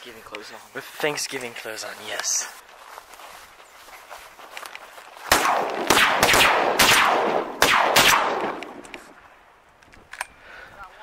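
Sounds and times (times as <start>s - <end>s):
shotgun blasts: 5.3s - 9.2s.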